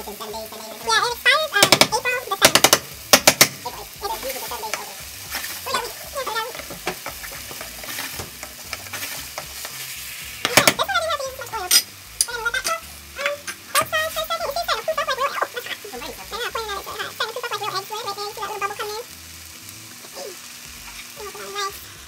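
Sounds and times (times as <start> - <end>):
omelette sizzling in a frying pan: 0.0 - 22.0
spatula scraping a pan: 4.2 - 10.8.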